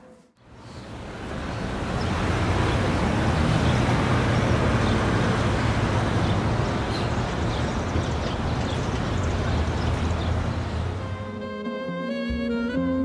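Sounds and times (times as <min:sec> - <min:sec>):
city traffic rumble: 0:00.0 - 0:13.0.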